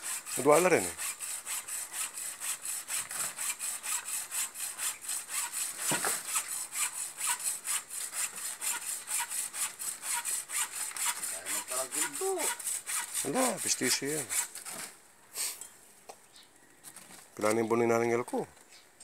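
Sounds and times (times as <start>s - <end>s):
rapid rasping strokes: 0.0s - 14.8s.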